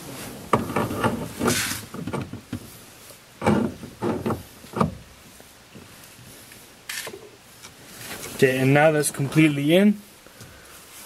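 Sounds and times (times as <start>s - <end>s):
metal knocks clicks and scrapes: 0.5s - 2.7s, 3.4s - 5.1s.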